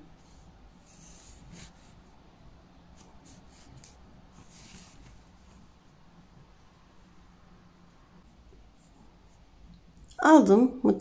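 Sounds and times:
yarn rustling and scraping: 3.0s - 6.0s.

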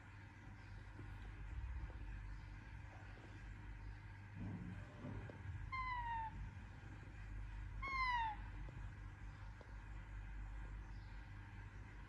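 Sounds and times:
parakeet meow-like calls: 5.7s - 6.4s, 7.8s - 8.5s.

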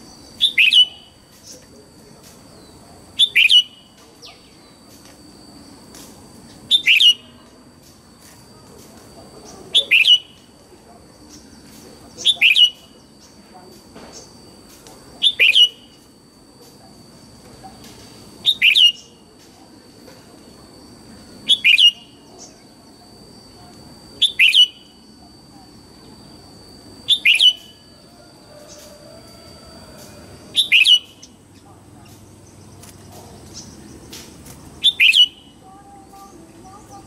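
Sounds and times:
faint steady high tone: 6.4s - 34.1s, 34.8s - 37.0s
bird singing falling whistles: 27.1s - 27.8s, 30.6s - 31.3s, 34.8s - 35.5s.

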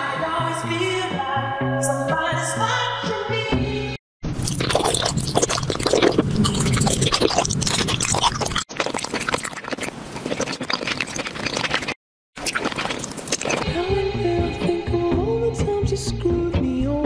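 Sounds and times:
candy crunching and chewing: 4.4s - 13.7s.

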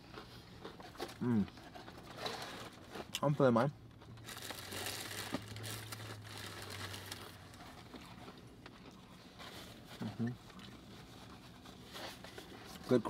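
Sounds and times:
low steady hum: 0.0s - 13.0s
paper wrapping crinkling: 4.2s - 8.0s.

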